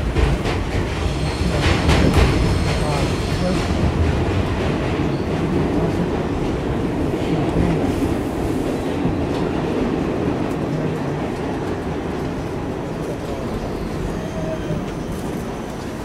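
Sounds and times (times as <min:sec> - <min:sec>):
subway wheels rumbling on rail: 0:00.0 - 0:16.0.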